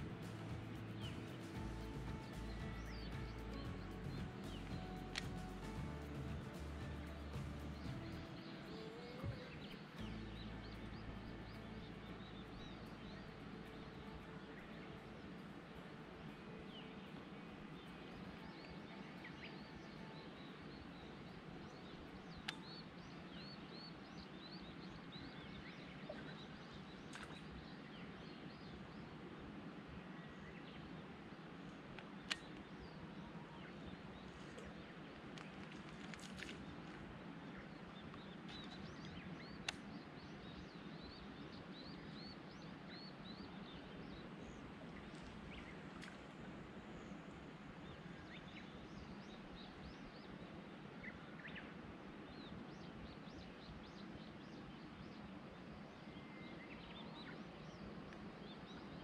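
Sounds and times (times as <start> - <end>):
bird chirping: 0.0 - 29.2
background hiss: 0.0 - 59.0
birds chirping: 0.0 - 59.0
outdoor ambience: 0.0 - 59.0.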